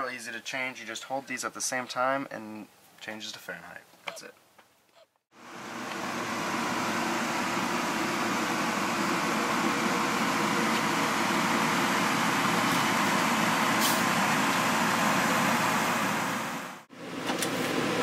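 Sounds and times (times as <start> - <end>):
air conditioner fan blowing: 5.4 - 18.0.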